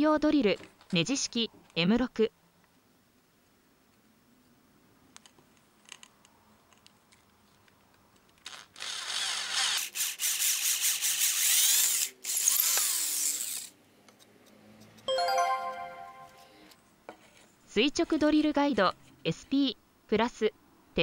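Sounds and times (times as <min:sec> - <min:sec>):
power drill boring into wood: 0:08.4 - 0:13.7.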